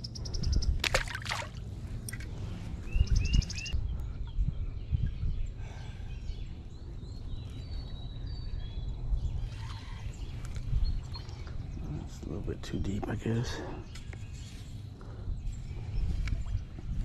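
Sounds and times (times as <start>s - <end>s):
fish splashing into water: 0.8s - 1.6s
bird chirps: 2.9s - 12.1s.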